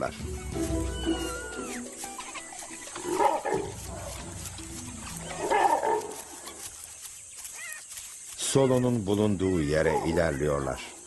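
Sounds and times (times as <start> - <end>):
wild dogs vocalizing: 1.0 - 6.8, 8.6 - 11.0.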